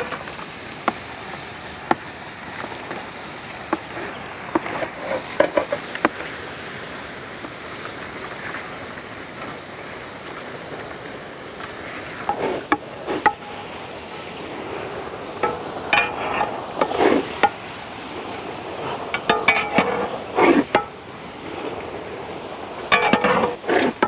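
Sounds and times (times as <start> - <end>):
steady hiss: 0.0 - 24.0
ladle scraping pot: 3.7 - 6.3, 15.4 - 17.6, 19.1 - 21.0, 22.9 - 24.0
ladle knocking against pot: 19.2 - 20.0.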